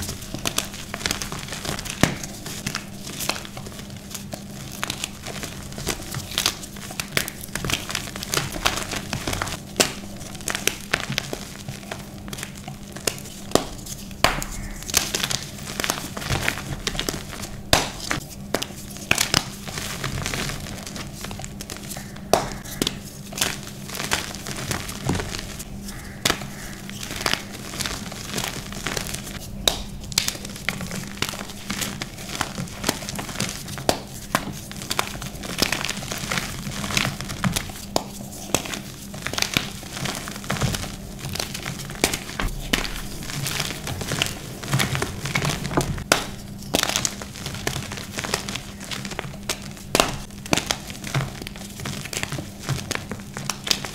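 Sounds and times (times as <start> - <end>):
crumbling powder blocks crackling: 0.0 - 53.9
faint steady hum: 0.0 - 53.9
soft powdery hiss: 21.1 - 50.3.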